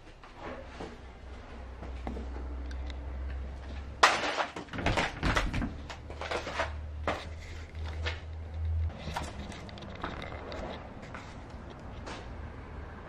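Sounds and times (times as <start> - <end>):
door knocking and rattling: 4.6 - 5.9.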